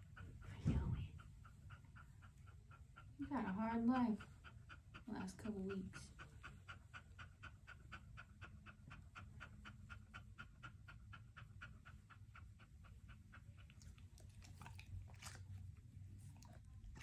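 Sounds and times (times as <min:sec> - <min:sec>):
dog panting rapidly: 0:00.0 - 0:17.0.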